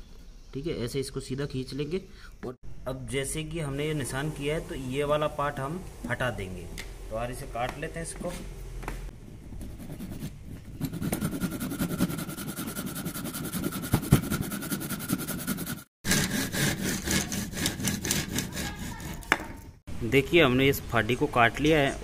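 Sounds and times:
handsaw cutting wood: 10.9 - 19.4.

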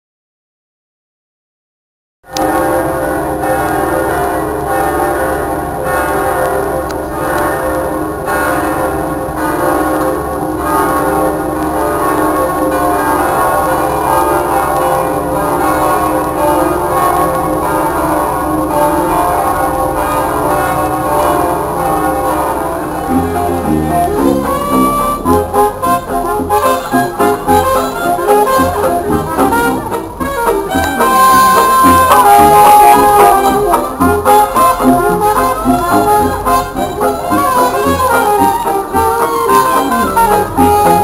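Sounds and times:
church bells pealing: 2.3 - 41.0
brass band playing: 9.4 - 41.0.

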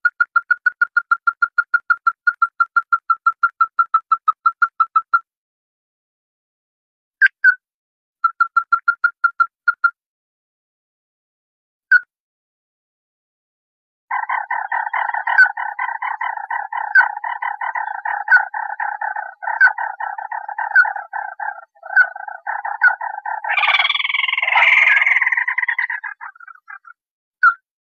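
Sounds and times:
crake rattling call: 14.1 - 26.9
harsh high squealing call: 21.8 - 26.7.

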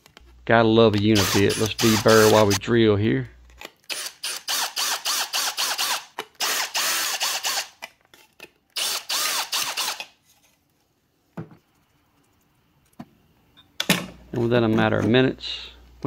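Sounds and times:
cordless drill cutting metal: 1.2 - 2.6, 3.9 - 7.8, 8.8 - 10.1.

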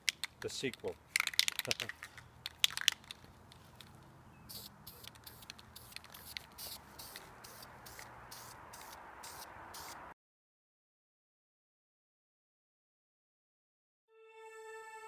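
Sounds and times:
spray paint can hissing: 4.5 - 10.0.

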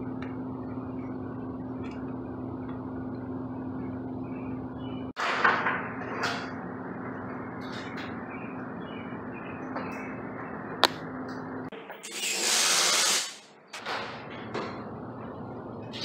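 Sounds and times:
steady low hum: 0.0 - 11.7.

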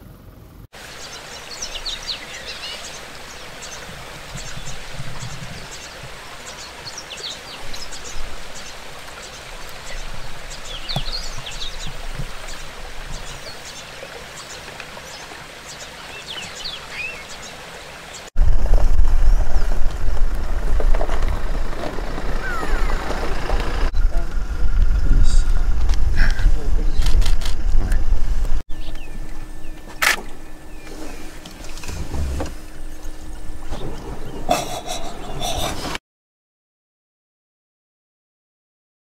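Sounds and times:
steady hiss: 0.8 - 18.3
bird chirps and calls: 0.9 - 18.3, 22.4 - 23.2, 32.8 - 35.9.

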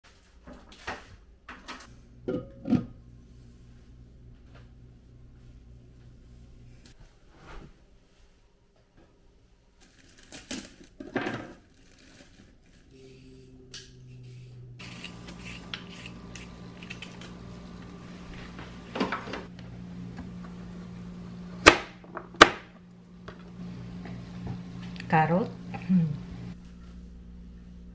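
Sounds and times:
steady low hum: 1.8 - 7.3, 12.6 - 27.9
vegetable peeler scraping: 14.1 - 18.0.

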